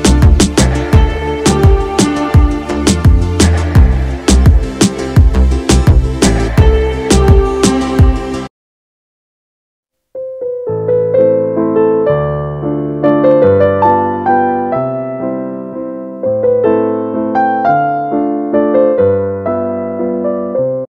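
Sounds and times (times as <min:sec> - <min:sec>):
gentle piano melody: 0:10.2 - 0:20.9.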